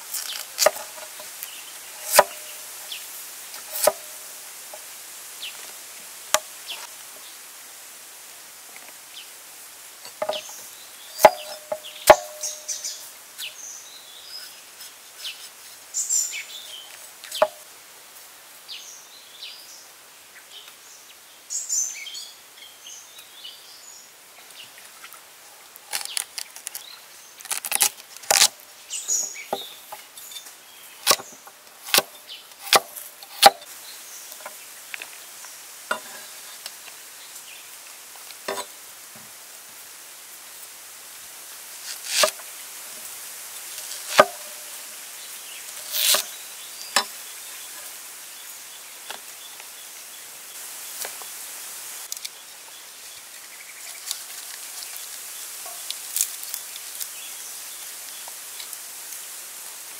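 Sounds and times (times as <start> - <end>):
cleaver chopping vegetables on wood: 2.0 - 2.4, 3.7 - 4.1, 11.2 - 12.5, 31.9 - 33.6.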